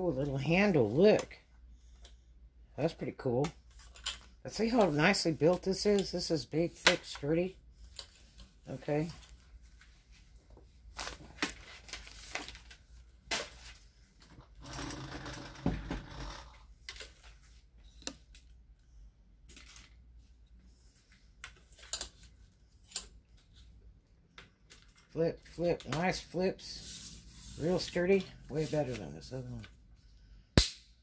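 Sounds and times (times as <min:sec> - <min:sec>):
sharp snaps of leg locks: 0:30.6 - 0:31.0.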